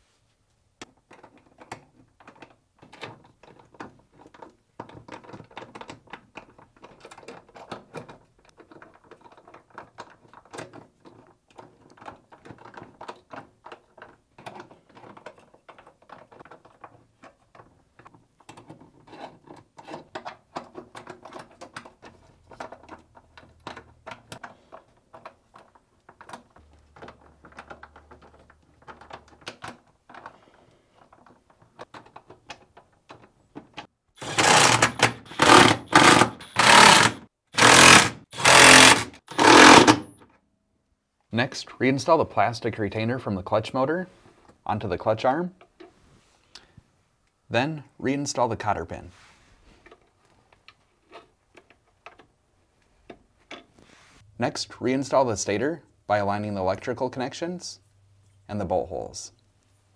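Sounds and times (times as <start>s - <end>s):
hand ratchet clicking: 34.2s - 40.1s.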